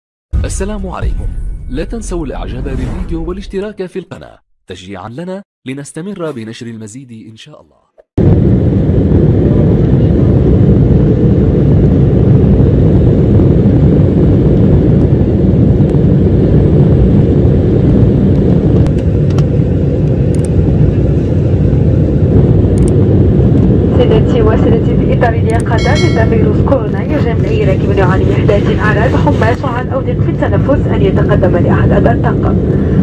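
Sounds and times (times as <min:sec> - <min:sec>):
jet engines at takeoff thrust: 0:08.2 - 0:33.0.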